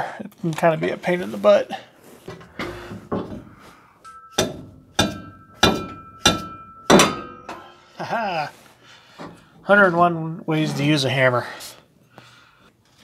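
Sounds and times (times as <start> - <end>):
hammer clanking on metal: 2.3 - 7.8.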